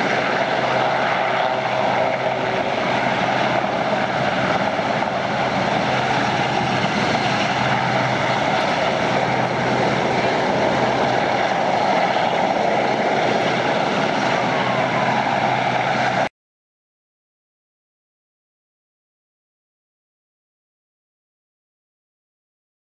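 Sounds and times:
helicopter hovering: 0.0 - 16.3.

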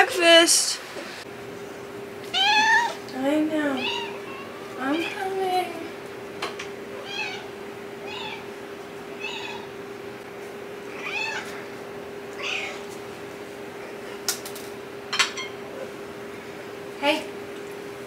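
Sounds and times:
cats meowing: 2.2 - 3.1, 3.7 - 5.4, 6.9 - 8.5, 9.1 - 9.8, 10.9 - 11.7, 12.3 - 12.9.

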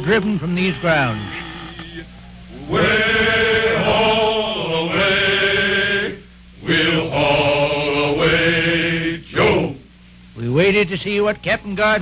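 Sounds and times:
male chorus singing held notes: 0.0 - 9.9.

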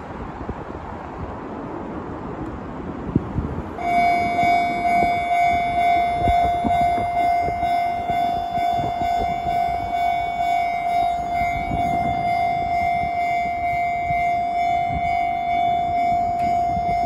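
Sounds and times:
level-crossing warning bell: 3.8 - 17.0.

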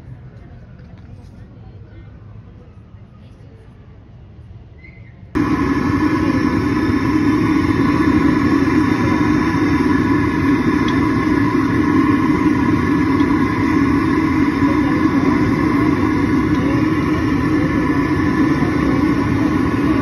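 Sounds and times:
gas burner roaring: 5.3 - 20.0.

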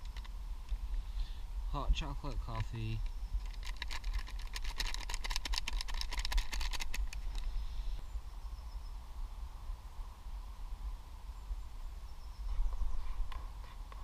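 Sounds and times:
stirrer clicking in metal cup: 3.4 - 7.2.

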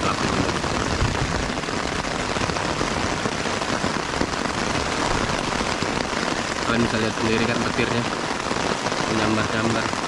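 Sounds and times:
steady downpour of rain: 0.0 - 10.0.

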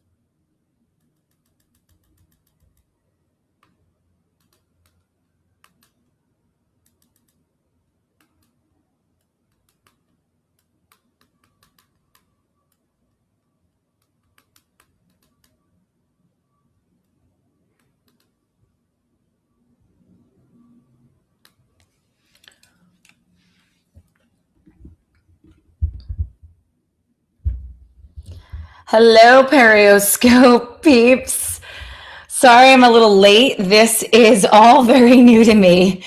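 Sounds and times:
fingers tapping on touchscreen: 1.0 - 3.0, 4.4 - 6.2, 6.8 - 7.5, 8.1 - 8.6, 9.2 - 15.6, 17.7 - 18.4, 24.0 - 26.5.

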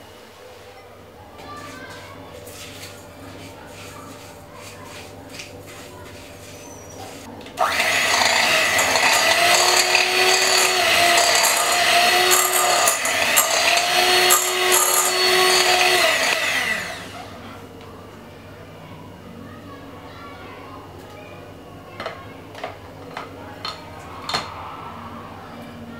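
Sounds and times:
electric hand mixer whining: 7.6 - 17.5.

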